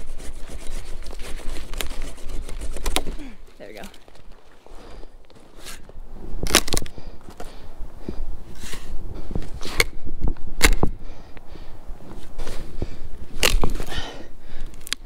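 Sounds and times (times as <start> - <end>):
firewood cracking and crunching: 0.6 - 7.6, 13.2 - 15.0.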